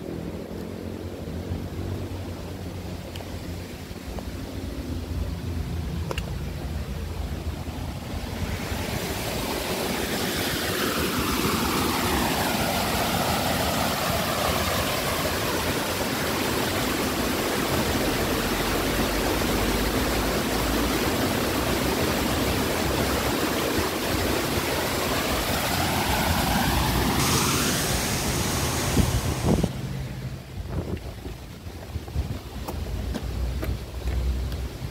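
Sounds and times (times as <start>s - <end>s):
passing vehicle rushing: 24.6s - 30.6s.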